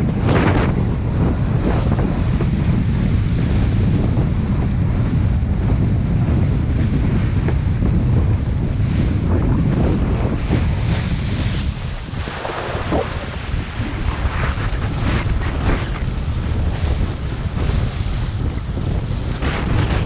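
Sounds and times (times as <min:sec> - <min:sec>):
wind buffeting microphone: 0:00.0 - 0:20.0
rushing water: 0:10.4 - 0:20.0.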